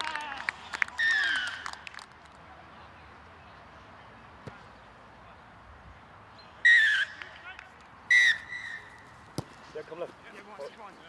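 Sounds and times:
referee's whistle blasts: 8.1s - 8.9s.

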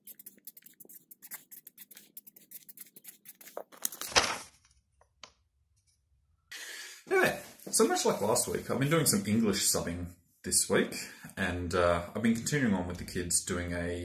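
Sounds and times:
marker scratching on paper: 0.0s - 3.8s.

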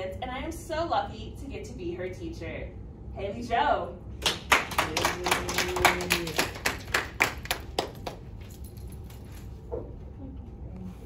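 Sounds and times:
people clapping: 4.2s - 8.4s.

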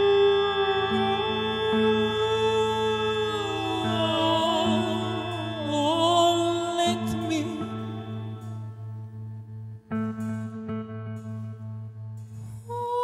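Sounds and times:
high wavering melody with vibrato: 0.0s - 9.1s
low drone: 0.0s - 13.0s.

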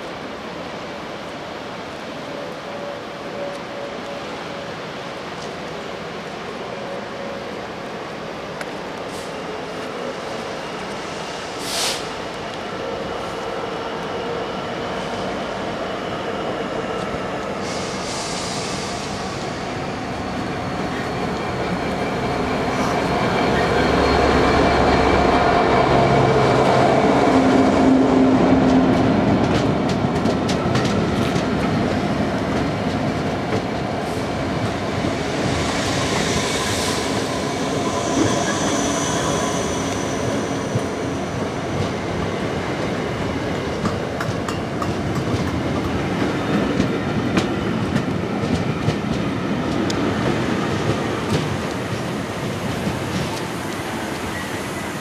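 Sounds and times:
diesel locomotive engine passing: 0.2s - 55.0s
train wheels clicking over rail joints: 28.6s - 33.9s, 43.6s - 53.9s
high wheel squeal: 35.2s - 41.7s.

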